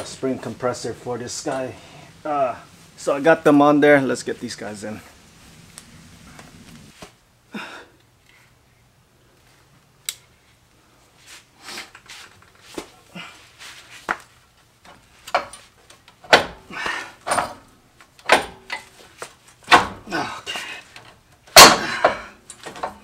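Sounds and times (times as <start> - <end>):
metal clanks and knocks: 15.3 - 15.6, 16.2 - 18.9, 19.6 - 20.1, 21.5 - 23.0.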